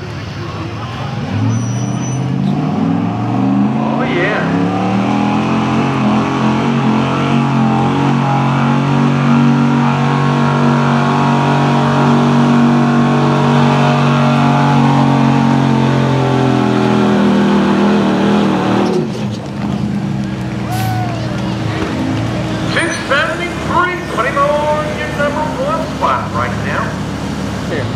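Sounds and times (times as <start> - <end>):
pickup truck engine revving: 0.0 - 27.9.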